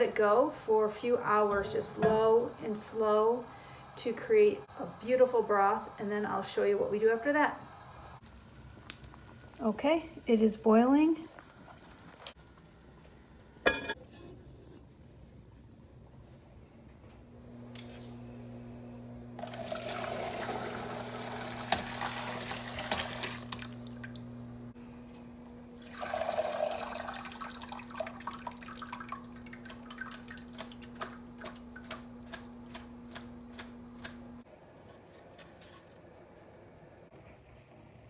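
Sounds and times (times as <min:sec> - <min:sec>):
broth pouring through colander: 0:19.4 - 0:24.2, 0:25.8 - 0:30.8.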